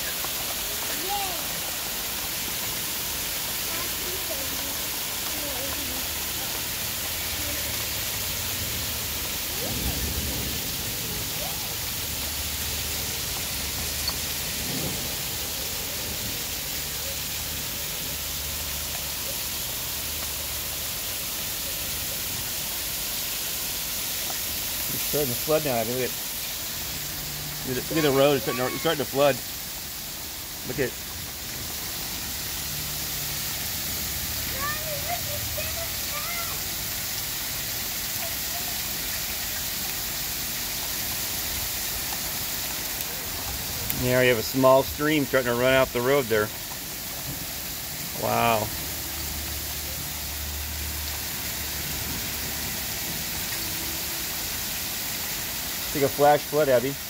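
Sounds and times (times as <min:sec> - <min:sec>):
heavy rain and hail: 0:00.0 - 0:57.0.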